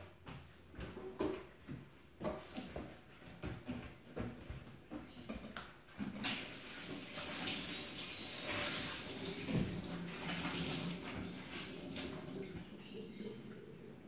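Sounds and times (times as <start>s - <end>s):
tap water splashing into sink: 6.0s - 12.7s.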